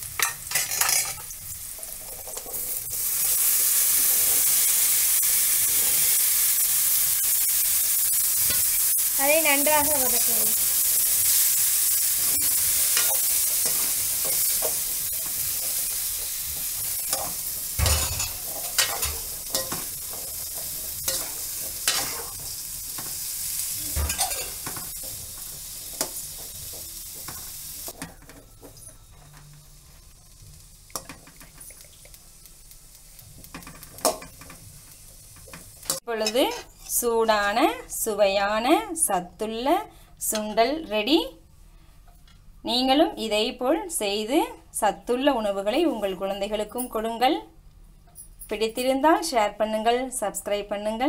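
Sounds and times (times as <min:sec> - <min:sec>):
chickpeas sizzling in oil: 0:00.0 - 0:38.5.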